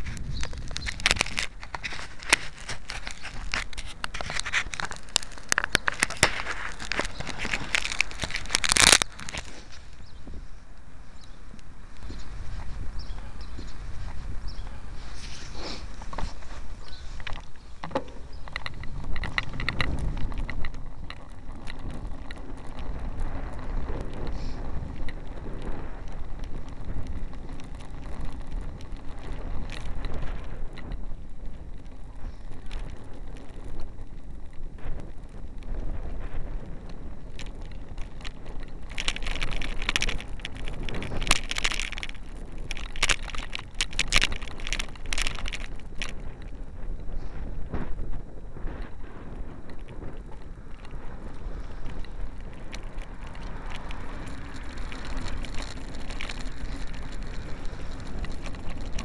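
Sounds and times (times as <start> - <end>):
camera clicks and rattles: 0.0 - 10.0, 15.2 - 35.0, 35.6 - 46.8, 49.6 - 59.0
vehicle road rumble: 0.0 - 59.0
wind buffeting microphone: 0.0 - 59.0.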